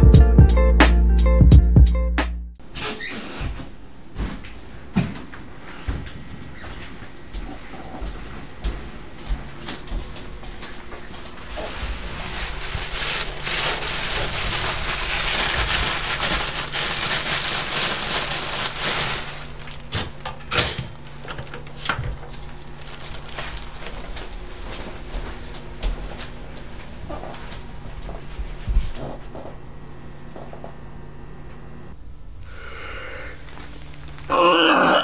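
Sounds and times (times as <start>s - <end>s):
plastic packaging rustling: 11.4s - 20.2s, 20.8s - 25.0s, 33.4s - 34.3s.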